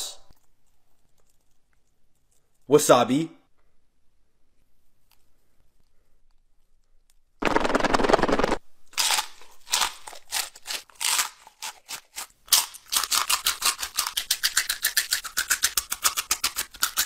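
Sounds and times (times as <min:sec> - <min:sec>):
chips crunching: 0:07.5 - 0:17.0.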